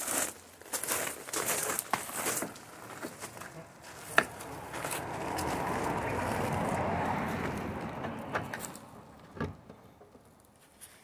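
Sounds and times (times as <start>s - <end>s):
vehicle passing: 2.8s - 10.6s.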